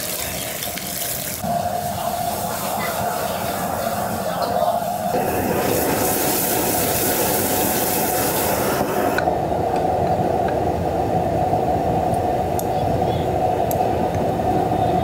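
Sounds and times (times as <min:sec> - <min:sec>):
frying sizzle: 0:00.0 - 0:09.2
kitchen drone: 0:00.0 - 0:15.0.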